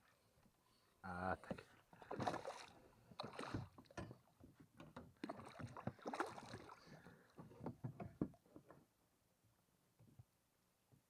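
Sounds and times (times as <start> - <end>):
water splashing and sloshing: 1.4 - 8.4.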